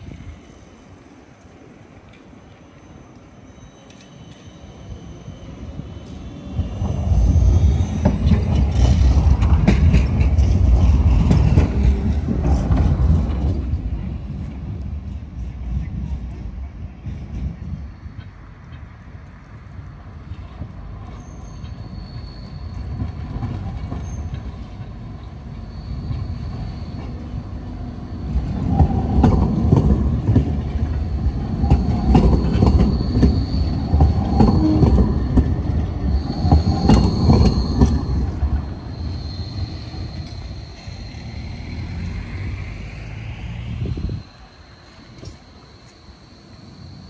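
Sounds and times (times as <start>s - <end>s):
tram wheels rumbling: 0.0s - 47.0s
high wheel squeal: 2.7s - 13.8s, 21.0s - 47.0s
rising whine: 30.9s - 47.0s.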